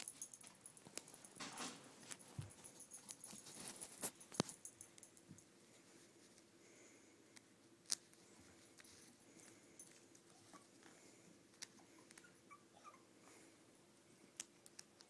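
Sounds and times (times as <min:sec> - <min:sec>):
faint rustling on carpet: 0:00.0 - 0:04.7, 0:05.3 - 0:12.3.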